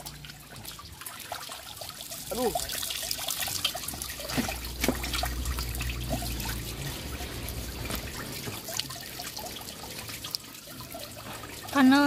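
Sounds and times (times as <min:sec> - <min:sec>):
water trickling and splashing: 0:00.0 - 0:12.0
low steady rumble: 0:03.8 - 0:11.6.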